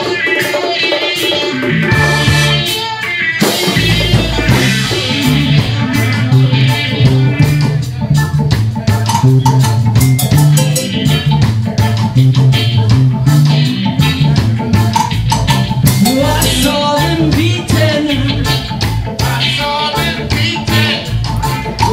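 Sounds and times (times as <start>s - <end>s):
electric guitar: 0.0s - 21.9s
keyboard: 0.0s - 21.9s
steady drum beat: 0.0s - 21.9s
repeating bass line: 1.6s - 2.8s, 3.4s - 21.9s.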